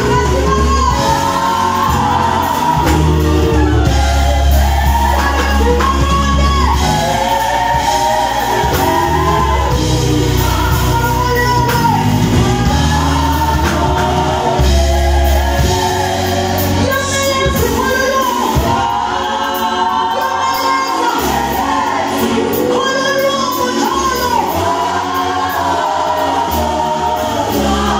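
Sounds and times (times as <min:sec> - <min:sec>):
low bass notes: 0:00.0 - 0:17.9
instrumental backing: 0:00.0 - 0:27.9
vocal group singing: 0:00.0 - 0:27.9.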